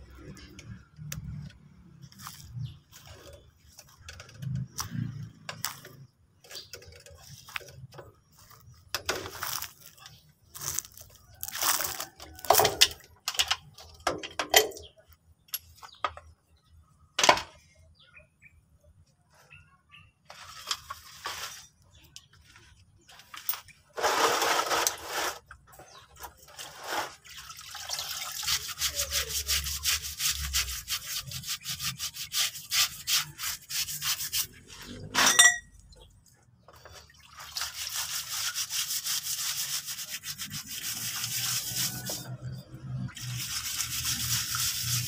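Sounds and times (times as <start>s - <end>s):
stiff brush scrubbing metal: 28.0s - 35.6s, 36.8s - 45.0s.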